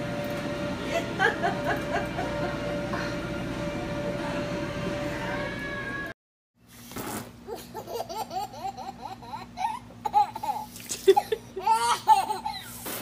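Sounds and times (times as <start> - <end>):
baby laughing: 7.5 - 12.8.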